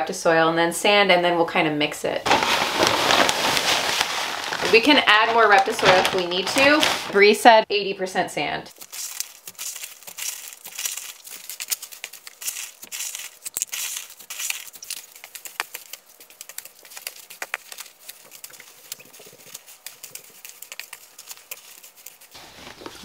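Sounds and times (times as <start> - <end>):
gritty crackling and scraping of sand: 8.8 - 23.0.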